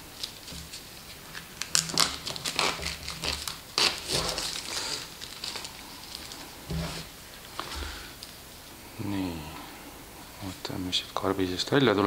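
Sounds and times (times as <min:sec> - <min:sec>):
plastic film crinkling: 0:00.1 - 0:07.7.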